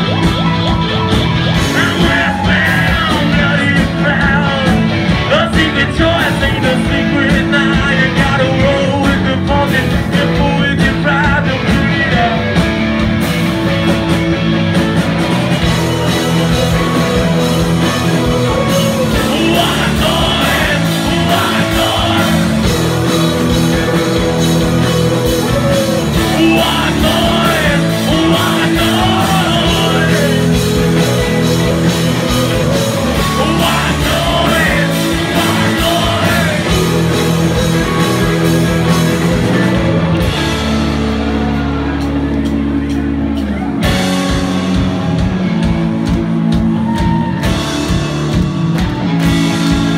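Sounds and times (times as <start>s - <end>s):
live rock band playing: 0.0s - 49.9s
singer singing into a microphone: 1.6s - 12.6s, 18.5s - 23.2s, 25.4s - 31.4s, 32.4s - 37.3s.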